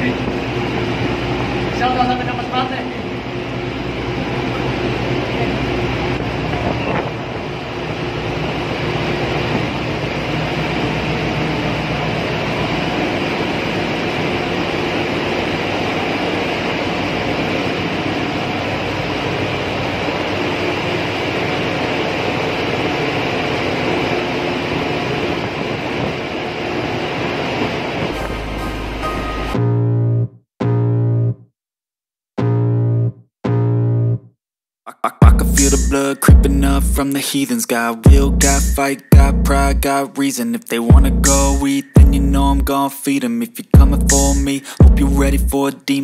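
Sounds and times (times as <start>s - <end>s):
rushing noise: 0.0s - 29.6s
engine room machinery drone: 0.0s - 30.3s, 35.0s - 46.0s
low hum: 0.0s - 30.3s, 35.2s - 37.2s, 38.1s - 40.0s, 40.9s - 42.7s, 43.8s - 45.6s.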